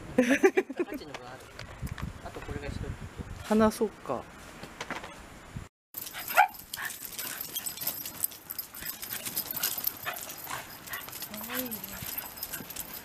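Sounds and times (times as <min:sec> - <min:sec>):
dog paws scuffling on concrete: 0:06.0 - 0:13.0
dog yelping: 0:06.0 - 0:13.0.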